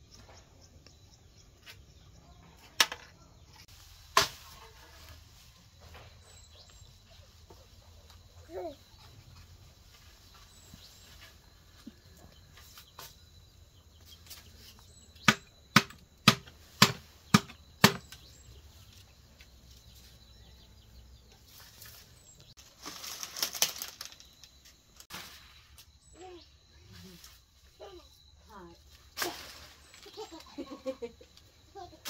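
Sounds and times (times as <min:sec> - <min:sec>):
rustling: 0:21.4 - 0:26.1.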